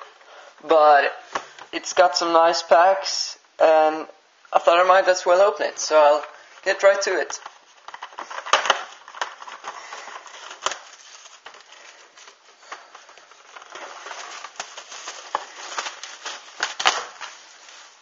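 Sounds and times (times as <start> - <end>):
plastic wrap crinkling: 4.6 - 18.0.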